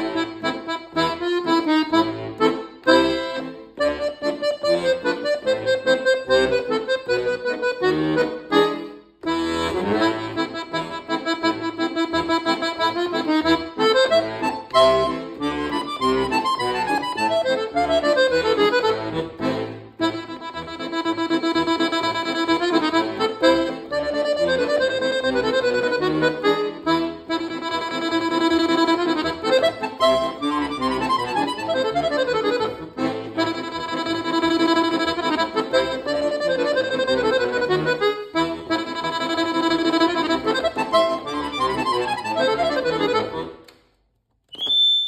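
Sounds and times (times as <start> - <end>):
accordion playing fast: 0.0 - 43.8
short high ping: 44.5 - 45.0.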